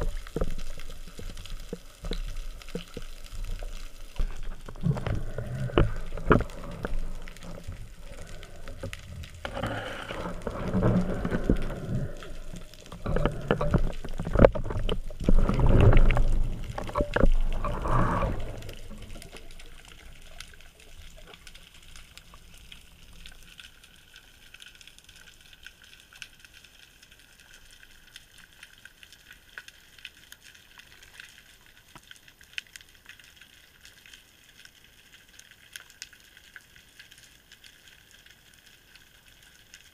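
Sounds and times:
water splashing and gurgling: 0.0s - 27.0s
faint underwater clicks: 0.0s - 39.9s.

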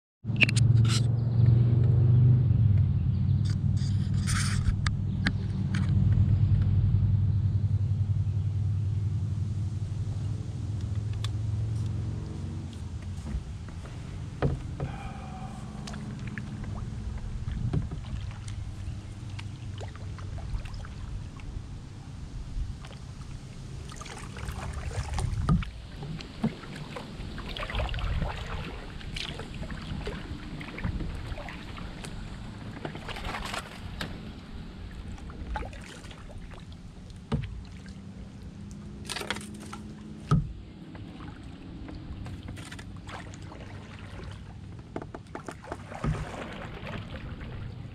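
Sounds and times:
steady low rumble: 1.2s - 39.2s
paddle splashing in water: 12.4s - 47.9s.

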